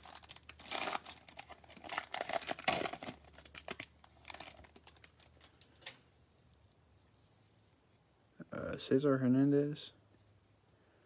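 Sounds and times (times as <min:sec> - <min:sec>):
foil wrapper tearing and crinkling: 0:00.0 - 0:06.0.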